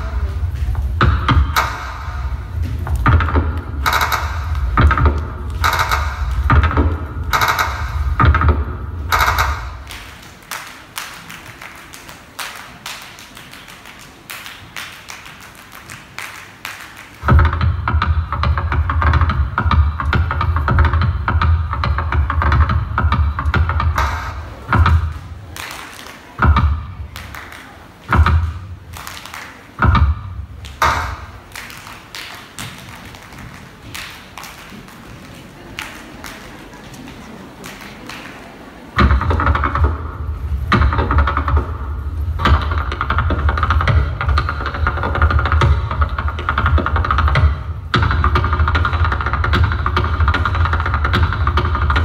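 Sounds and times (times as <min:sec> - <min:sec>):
hand-clapping: 0:02.9 - 0:08.5, 0:09.1 - 0:17.6, 0:24.0 - 0:39.9.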